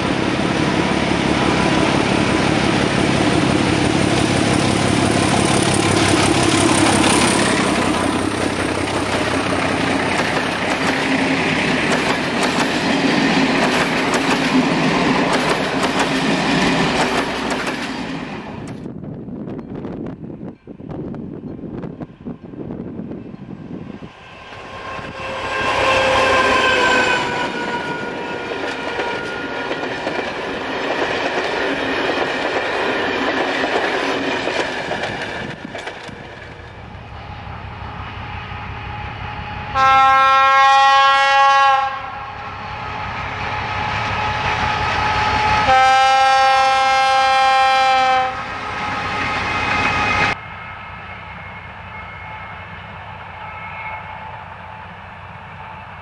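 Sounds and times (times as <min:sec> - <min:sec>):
diesel locomotive engine: 0:00.0 - 0:56.0
train rumbling over rails: 0:00.0 - 0:56.0
train horn blasts: 0:24.4 - 0:29.8, 0:38.2 - 0:54.8.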